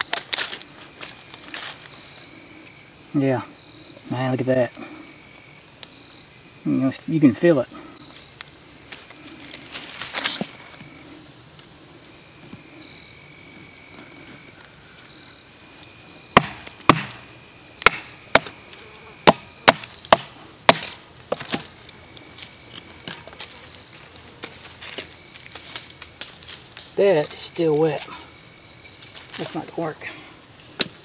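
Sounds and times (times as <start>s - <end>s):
insects buzzing: 0.0s - 31.0s
wooden baton striking wood: 16.4s - 17.2s.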